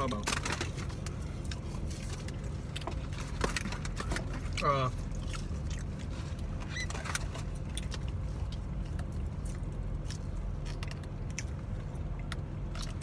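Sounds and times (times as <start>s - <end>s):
car interior rumble: 0.0s - 13.0s.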